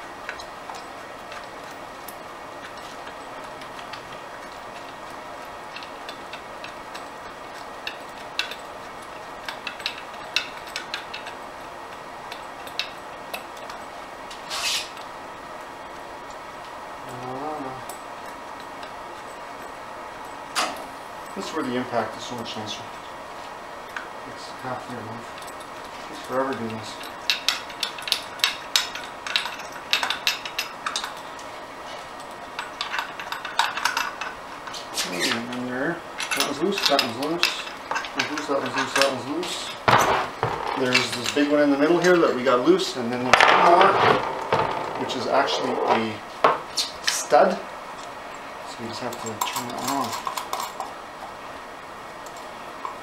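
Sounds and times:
hand wrench clicking on bolts: 27.3 - 31.2
scraping clatter: 43.2 - 46.2.

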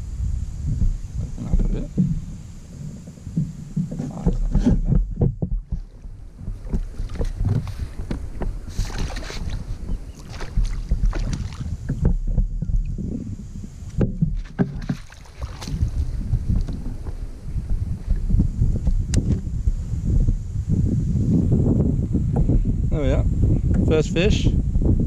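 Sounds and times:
wind buffeting microphone: 0.0 - 25.0
fish splashing: 5.6 - 12.1, 14.3 - 18.2
knocks against plastic kayak: 6.6 - 12.9, 13.9 - 15.9.

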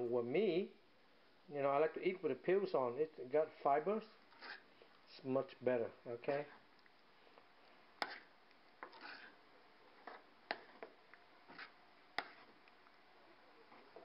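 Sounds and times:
spoon stirring thick soup: 4.0 - 5.6, 6.2 - 14.0
spoon tapping and scraping pot: 8.0 - 9.3, 10.0 - 12.8.

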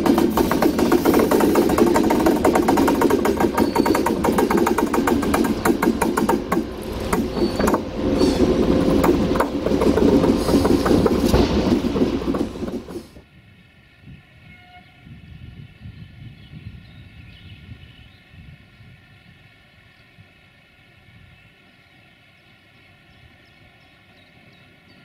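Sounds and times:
wheels clicking over rails: 0.0 - 13.2
locomotive engine rumble: 0.0 - 13.3.

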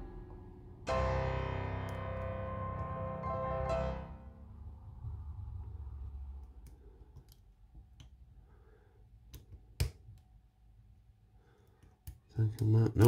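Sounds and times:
low rumble: 0.0 - 7.1.

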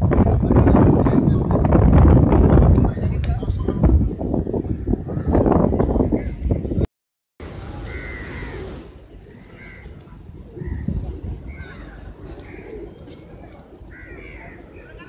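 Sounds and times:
pigeons cooing: 7.9 - 14.8.

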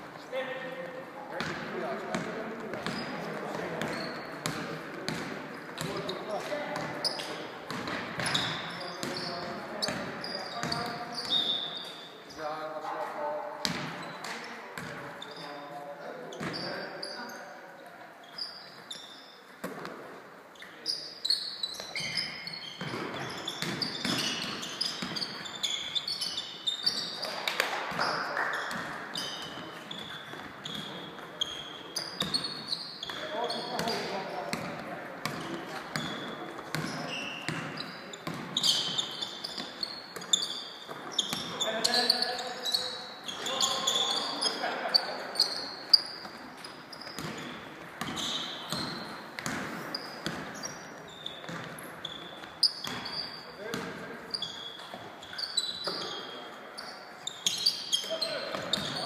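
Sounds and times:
sneakers squeaking: 0.4 - 59.0
basketball bouncing: 3.8 - 6.0, 7.7 - 9.2, 13.6 - 14.2, 22.8 - 25.4, 33.8 - 38.9, 47.0 - 50.6, 51.4 - 51.8, 52.8 - 53.1, 53.7 - 54.0
players' voices: 33.0 - 38.4.

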